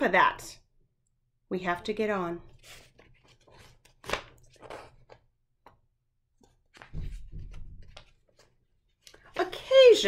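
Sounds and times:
paper pages rustling: 2.5 - 5.3, 6.4 - 10.0.

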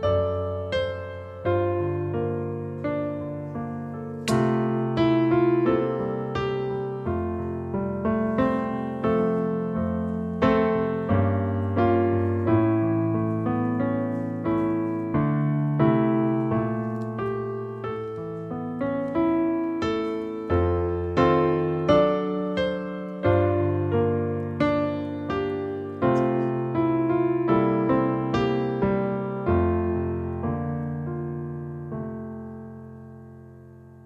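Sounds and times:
slow calm piano piece: 0.0 - 34.0.

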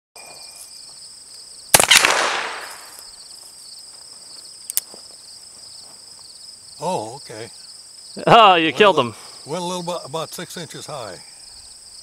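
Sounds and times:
insects chirring: 0.2 - 12.0
revolver gunshot: 1.7 - 3.0.

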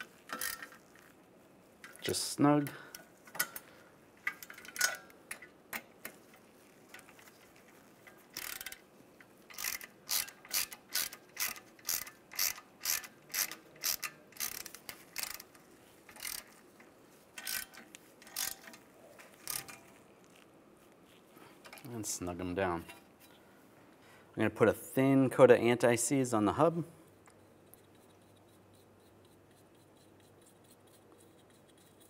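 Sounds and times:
hand ratchet clicking: 0.0 - 0.8, 8.3 - 8.8, 9.5 - 16.6, 17.4 - 18.8.

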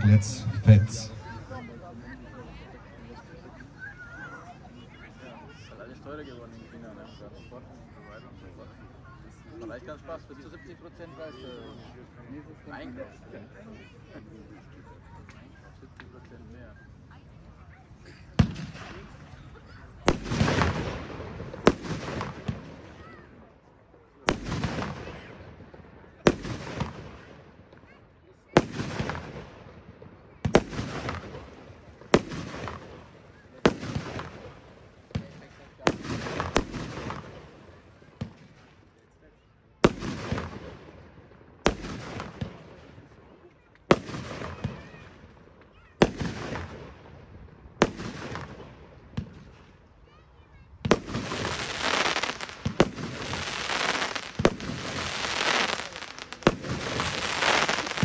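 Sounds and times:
firework battery reports: 0.0 - 1.8, 51.1 - 58.0
small firework pops: 18.4 - 19.4, 20.0 - 23.3, 24.2 - 27.9, 28.6 - 39.0, 39.8 - 40.9, 41.6 - 47.1, 47.8 - 49.8, 50.8 - 58.0.

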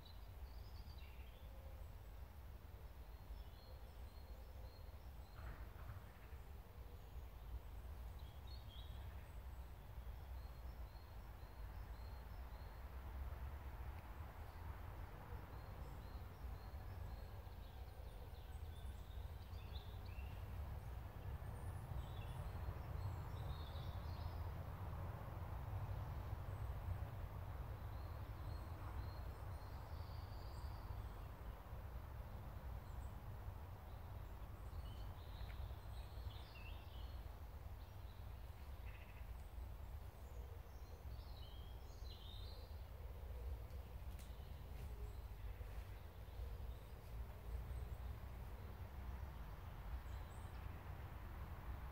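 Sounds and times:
small birds chirping: 34.0 - 48.8.

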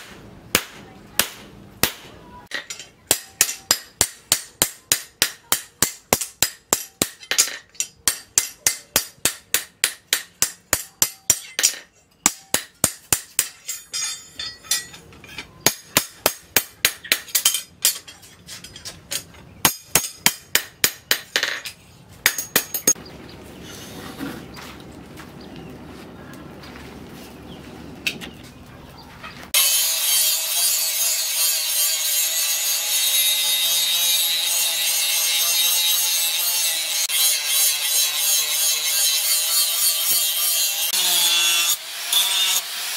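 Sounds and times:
hammer striking steel on anvil: 0.0 - 23.0.

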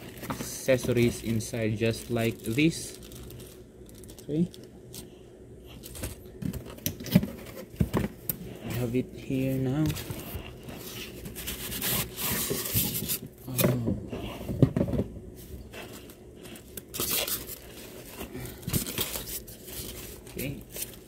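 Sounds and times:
foam and plastic wrap crinkling: 0.0 - 5.0, 15.8 - 21.0.

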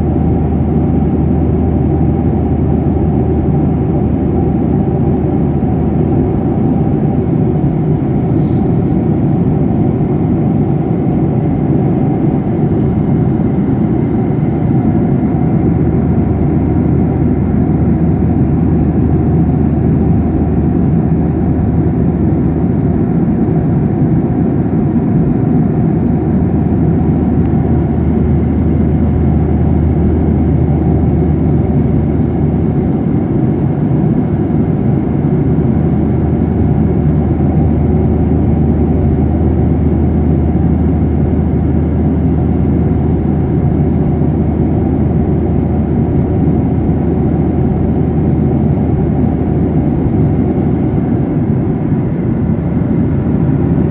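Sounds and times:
jet airliner cabin drone: 0.0 - 53.9.

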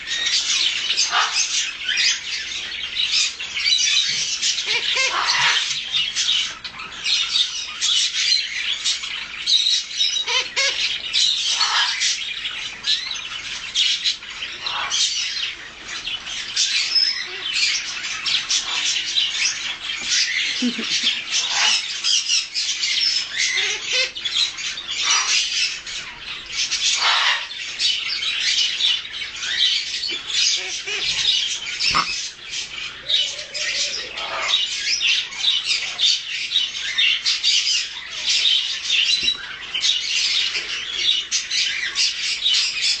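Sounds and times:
macaw chick squawking: 30.1 - 32.3.

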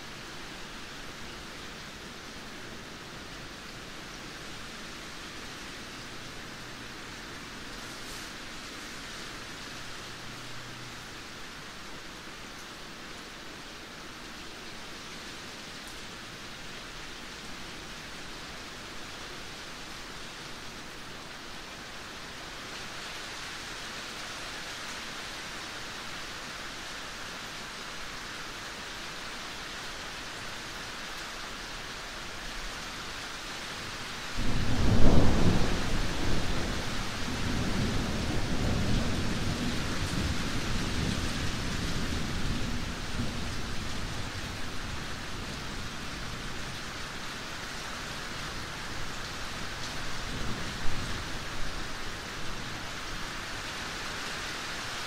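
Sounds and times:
steady rain falling: 0.0 - 55.0
thunder clap and rumble: 34.4 - 43.4.

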